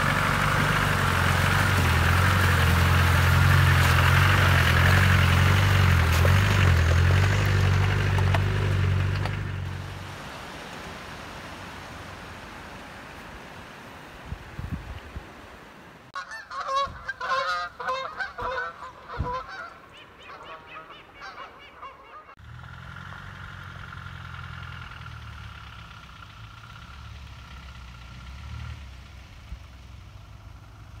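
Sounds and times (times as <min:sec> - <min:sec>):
vehicle engine humming: 0:00.0 - 0:14.2, 0:15.8 - 0:31.0
geese honking: 0:16.2 - 0:22.4.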